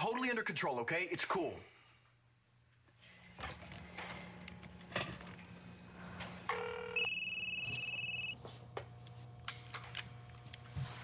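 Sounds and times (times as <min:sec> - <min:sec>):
high steady electronic tone: 0:06.5 - 0:08.4
short low beep: 0:07.0 - 0:08.4.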